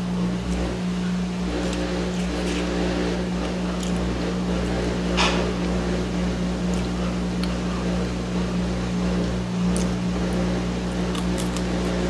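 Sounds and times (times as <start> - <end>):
washing machine and dryer humming: 0.0 - 12.0
chewing clicks: 3.4 - 4.0, 6.7 - 7.6, 9.7 - 10.0, 11.1 - 12.0
crunch: 3.4 - 5.8, 9.6 - 10.4, 11.0 - 12.0.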